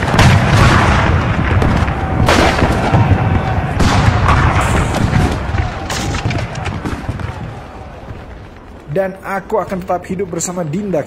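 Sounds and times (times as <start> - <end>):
gunshots and booms: 0.0 - 8.5
continuous battle din: 0.0 - 11.0.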